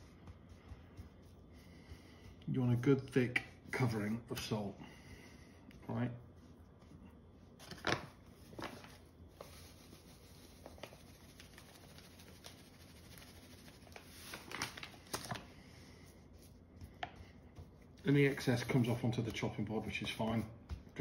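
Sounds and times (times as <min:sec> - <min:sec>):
hands patting meat: 0:00.0 - 0:02.5
gritty salt rustling: 0:08.4 - 0:15.3.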